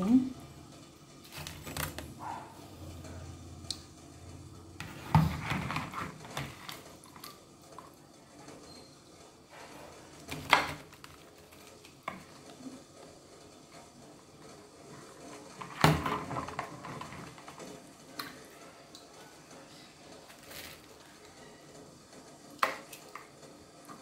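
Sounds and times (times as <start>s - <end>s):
fruit and strainer clattering: 4.8s - 7.4s, 15.3s - 17.8s, 20.2s - 21.1s.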